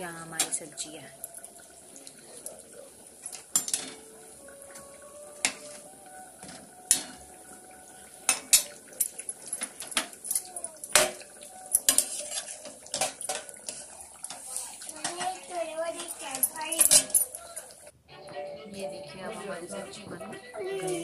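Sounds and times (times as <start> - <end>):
metal ladle scraping pot: 10.9 - 17.2.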